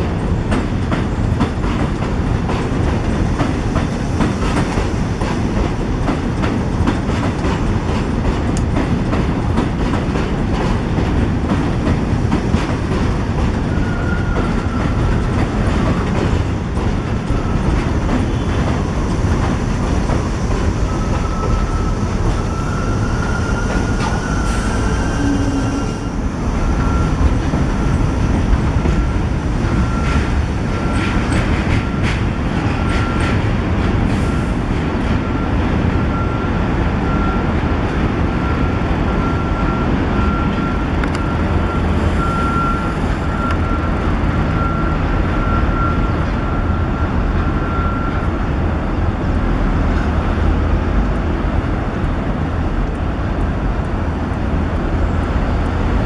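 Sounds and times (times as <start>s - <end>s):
subway train rumbling: 0.0s - 56.0s
high wheel squeal: 13.6s - 15.2s, 20.2s - 28.1s.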